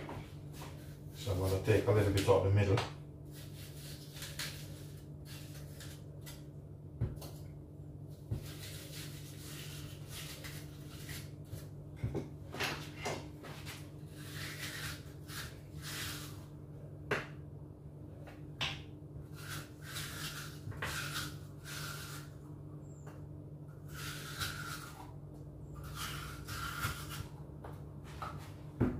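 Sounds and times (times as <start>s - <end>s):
steady low hum: 0.0s - 28.9s
knife cutting apple: 3.3s - 7.5s, 8.1s - 11.8s, 13.6s - 16.5s, 18.6s - 22.4s, 23.1s - 27.4s.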